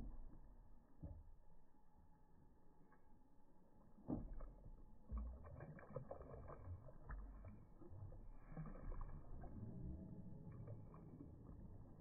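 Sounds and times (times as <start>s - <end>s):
water sloshing and splashing: 3.8s - 12.0s.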